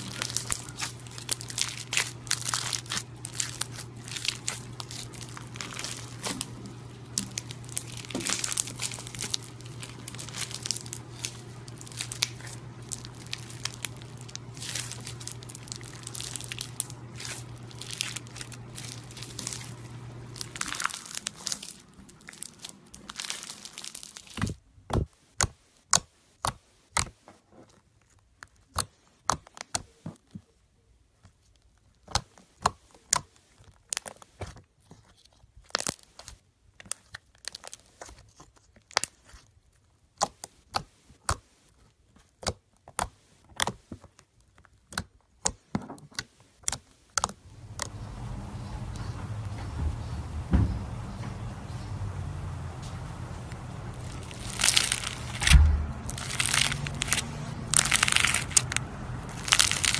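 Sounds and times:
slime crackling and crinkling: 0.0 - 25.1, 31.2 - 41.4, 42.0 - 49.5, 50.9 - 59.9
slime popping and clicking: 54.0 - 59.9.

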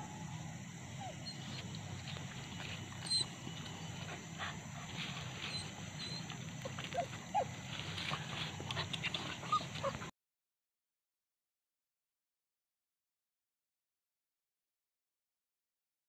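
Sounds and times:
dog whining: 1.0 - 10.1.

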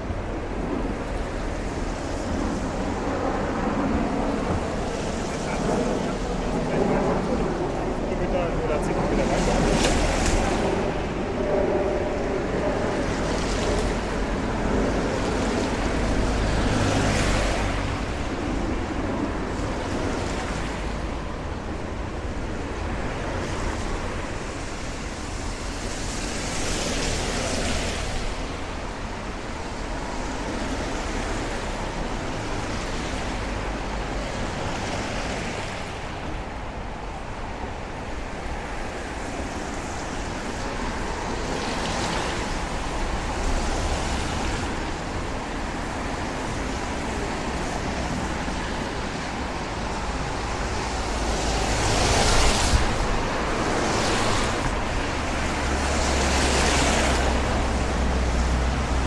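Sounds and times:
low traffic rumble: 0.0 - 59.0
tyres hissing on wet road: 12.8 - 21.8, 22.6 - 59.0.

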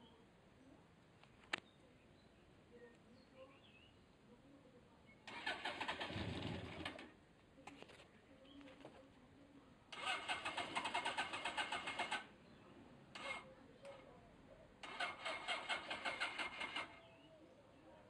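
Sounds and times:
motorcycle engine cranking: 5.3 - 7.1, 9.9 - 12.3, 13.2 - 13.4, 14.8 - 17.0.

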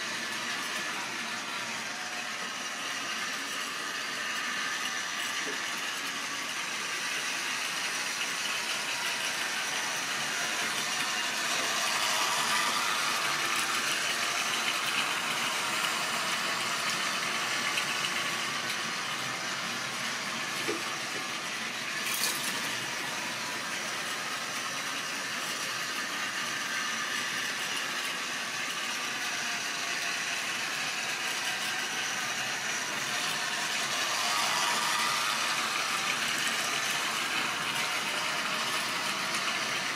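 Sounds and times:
small electric motor: 0.0 - 39.9
model train rattling on track: 3.3 - 23.1, 24.6 - 39.9.

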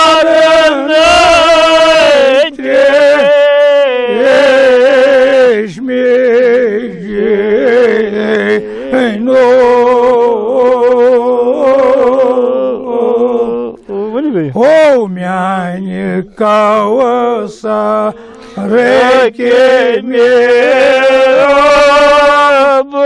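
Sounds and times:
man singing unaccompanied: 0.0 - 23.0
short breaths: 18.1 - 18.6.

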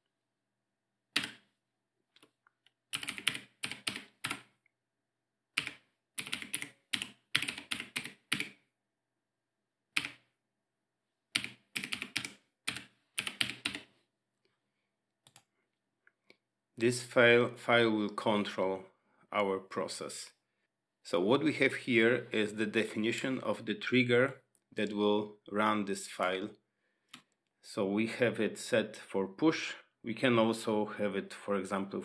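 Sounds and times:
typing on a keyboard: 2.9 - 4.5, 5.6 - 8.6, 11.4 - 13.9.

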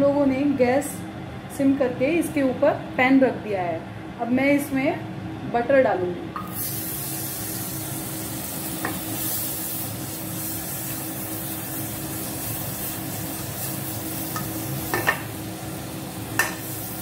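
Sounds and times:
butter sizzling in a pan: 6.5 - 17.0
pan knocking on burner grate: 14.3 - 15.3, 16.4 - 16.7.

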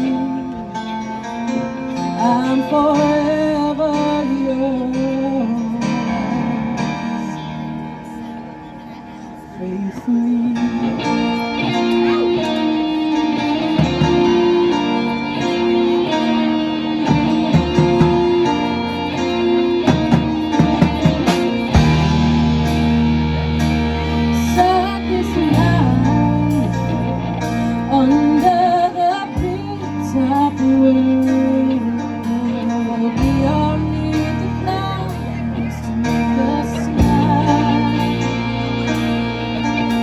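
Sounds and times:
live rock band playing: 0.0 - 40.0.

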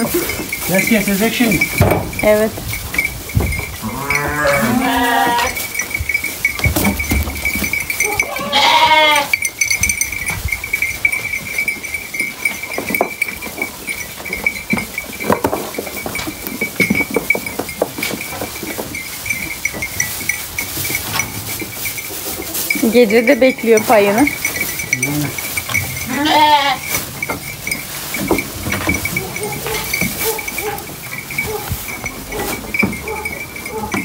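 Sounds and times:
sheep chewing hay: 0.0 - 34.0
sheep bleating: 3.8 - 5.6, 8.1 - 9.4, 26.1 - 26.9.

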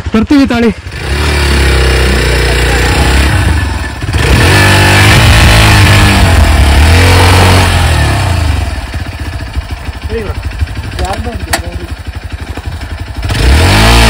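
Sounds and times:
motorcycle engine idling unevenly: 0.0 - 4.2, 8.1 - 13.4
motorcycle engine revving: 0.0 - 14.0.

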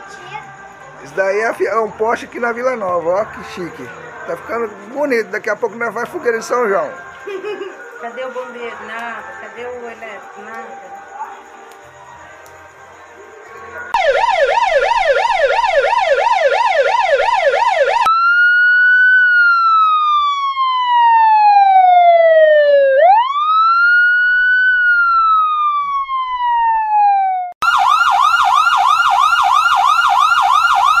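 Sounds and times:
electronic siren yelp and wail: 14.0 - 31.0.

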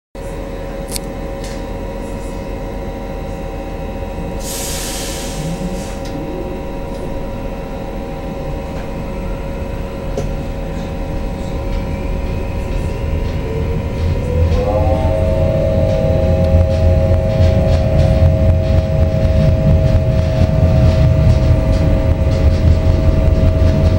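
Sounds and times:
electric train hum and whine: 0.2 - 23.9
train rumble: 0.2 - 23.9
short hiss: 4.4 - 6.0.

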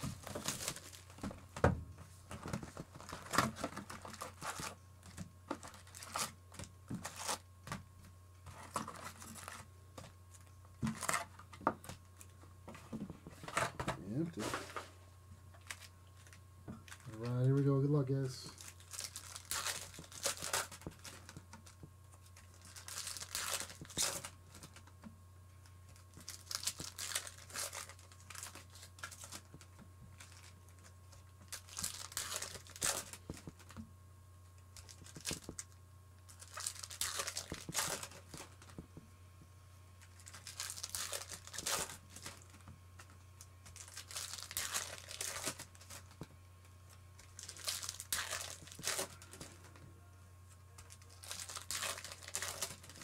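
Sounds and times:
foil wrappers tearing and crinkling: 0.0 - 1.2, 2.5 - 7.5, 8.5 - 9.7, 10.3 - 12.3, 15.6 - 25.0, 25.9 - 33.8, 34.7 - 38.8, 40.0 - 46.2, 47.2 - 49.8, 50.8 - 53.0.

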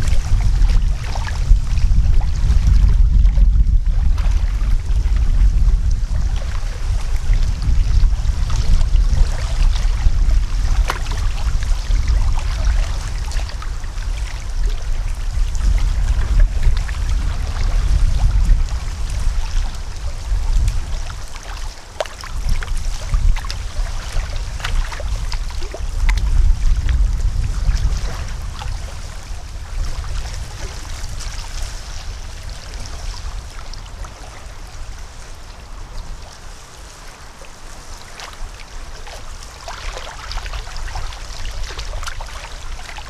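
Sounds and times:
waves lapping at shore: 0.0 - 43.0
wind buffeting microphone: 0.0 - 43.0.

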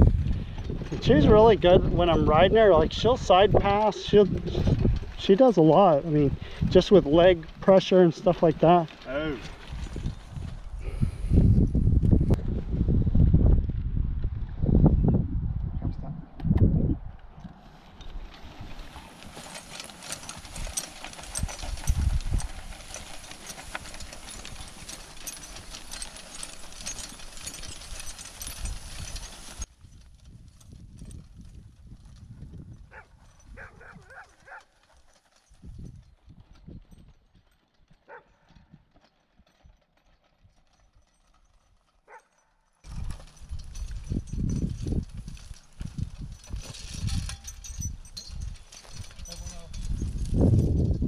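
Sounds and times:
harness rattling: 0.0 - 12.4, 17.3 - 51.0
hooves on grass: 0.0 - 13.3, 17.2 - 39.8
hooves thudding on grass: 32.2 - 39.5.

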